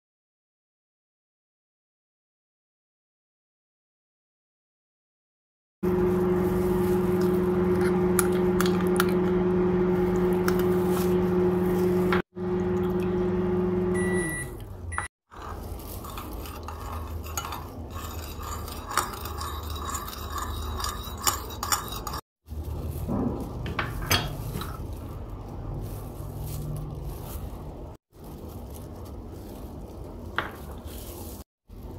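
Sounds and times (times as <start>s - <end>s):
appliance motor humming: 5.9s - 15.1s
short beep: 14.0s - 15.1s
metal spoon scraping a plate: 15.3s - 22.2s.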